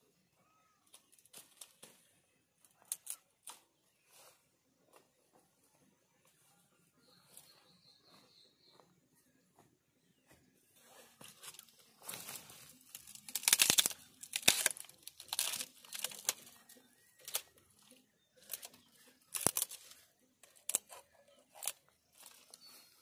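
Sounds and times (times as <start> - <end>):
twigs snapping and crunching: 0.9 - 3.7, 11.2 - 22.8
leaves rustling: 10.8 - 23.0.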